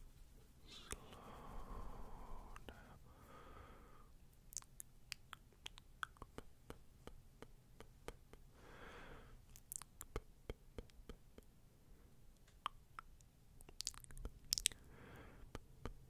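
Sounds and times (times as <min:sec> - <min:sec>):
soft breathy sound: 0:00.0 - 0:04.4, 0:08.3 - 0:09.8, 0:13.9 - 0:16.0.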